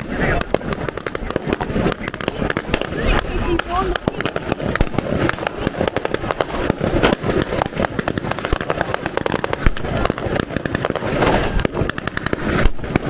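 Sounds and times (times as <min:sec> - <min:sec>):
rapid gunfire cracks: 0:00.0 - 0:13.0.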